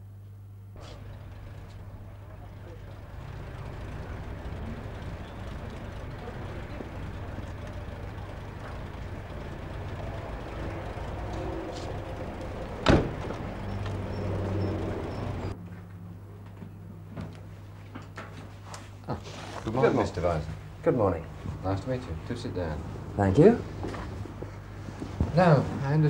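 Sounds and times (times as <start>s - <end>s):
car engine rumbling: 0.8s - 15.6s
car door slamming: 12.7s - 14.0s.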